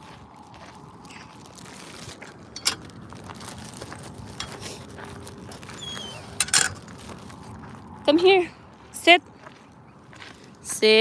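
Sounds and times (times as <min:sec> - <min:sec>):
footsteps on gravel: 0:00.0 - 0:11.0
metal gate latch clanking: 0:06.4 - 0:06.8.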